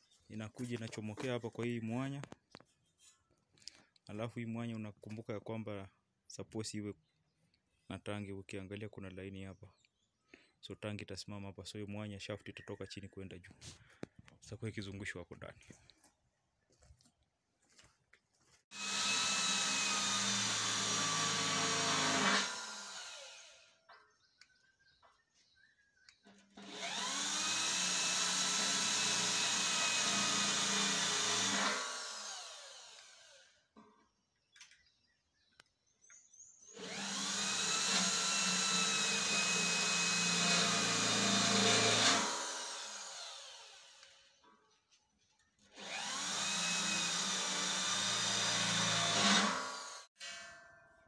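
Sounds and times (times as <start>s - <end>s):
electric drill whining: 18.7s - 23.8s, 26.4s - 33.6s, 36.7s - 44.3s, 45.7s - 50.2s.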